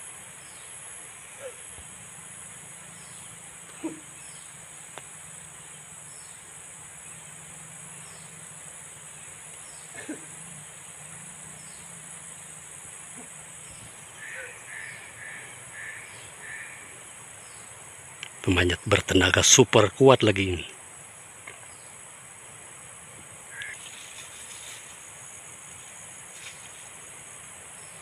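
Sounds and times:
insects buzzing: 0.0 - 28.0
short bird calls: 14.1 - 17.0.

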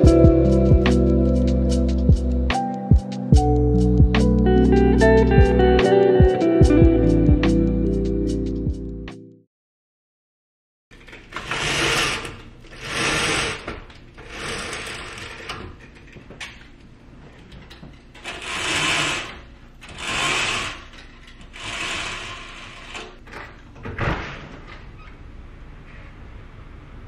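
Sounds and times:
roller shade ratcheting rattle: 11.0 - 16.5, 17.4 - 23.4.

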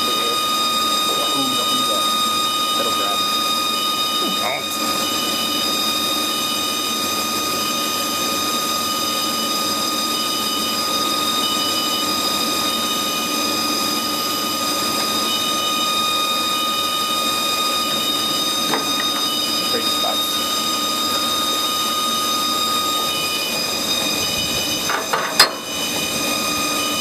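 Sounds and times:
short high tone pulses: 0.0 - 6.6, 18.3 - 27.0
lathe spindle whine: 0.0 - 27.0
low running hum: 0.0 - 27.0.

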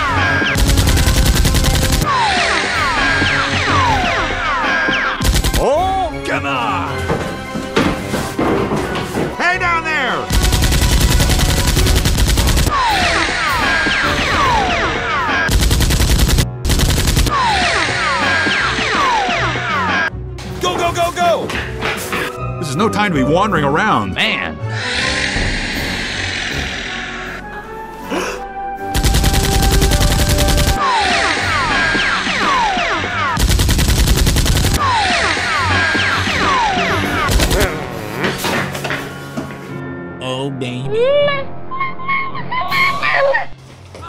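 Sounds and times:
background music: 0.0 - 44.0
automatic gunfire: 0.6 - 2.1, 5.2 - 5.7, 10.3 - 13.1, 15.5 - 17.8, 29.0 - 30.8, 33.4 - 34.8
machine-gun bursts: 0.6 - 2.1, 10.3 - 13.0, 15.5 - 17.8, 29.0 - 30.8, 33.4 - 34.8.

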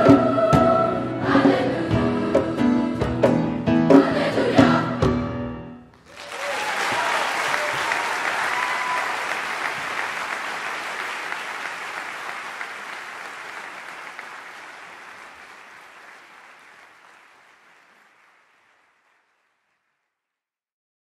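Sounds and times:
audience applauding: 6.0 - 20.0.

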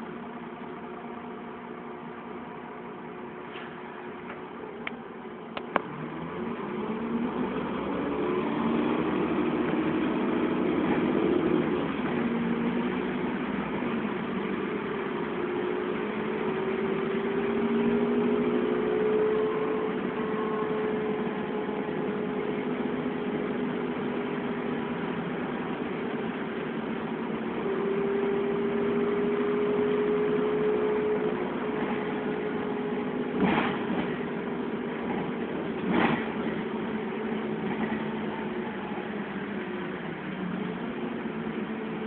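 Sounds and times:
bus engine running: 0.0 - 42.0.

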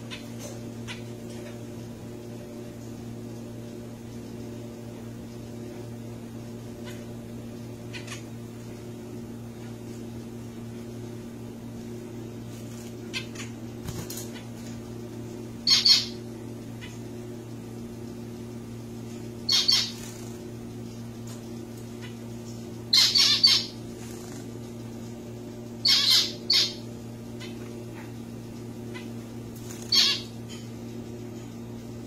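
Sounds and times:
steady low hum: 0.0 - 32.0
finch calls: 7.9 - 8.2, 15.6 - 16.2, 19.4 - 20.4, 22.9 - 24.4, 25.8 - 27.6, 28.9 - 30.6.

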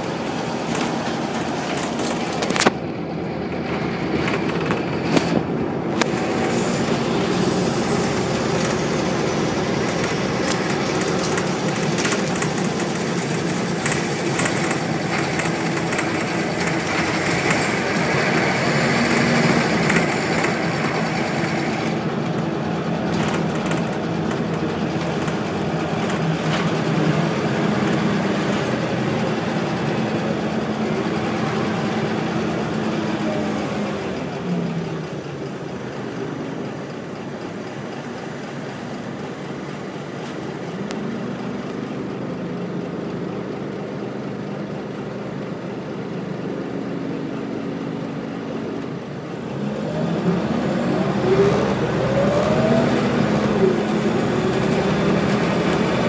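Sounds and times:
high-pitched whine: 0.0 - 35.5, 47.4 - 56.0
bus diesel engine running: 0.0 - 56.0
interior clicks and rattles: 0.1 - 30.9.

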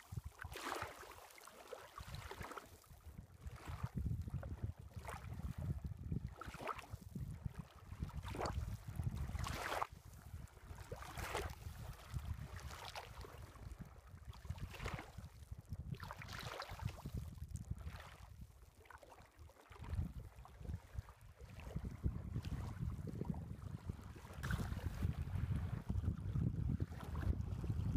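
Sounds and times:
wind rumble on microphone: 0.0 - 0.9, 2.0 - 27.9
waves lapping on stony shore: 0.0 - 4.0, 6.3 - 7.1, 7.9 - 15.4, 16.0 - 17.2, 23.9 - 25.9.

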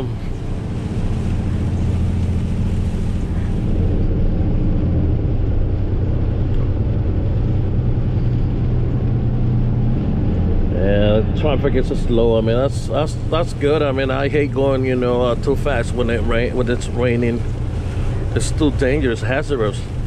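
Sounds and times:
truck engine droning: 0.0 - 20.0
tyres on wet road: 0.0 - 20.0.

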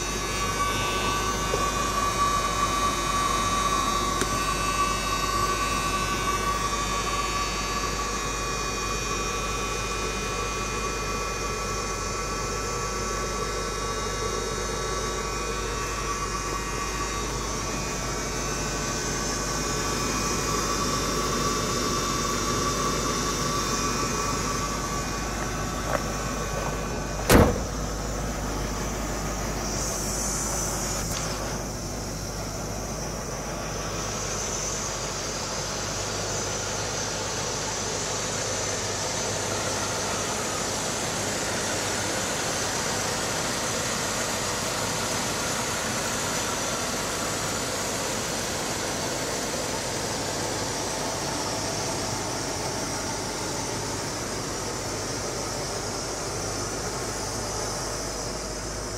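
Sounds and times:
car door slamming: 25.3 - 28.2.

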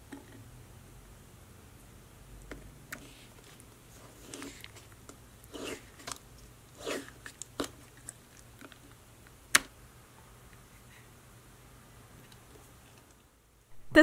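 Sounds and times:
slime squishing: 3.0 - 9.6.

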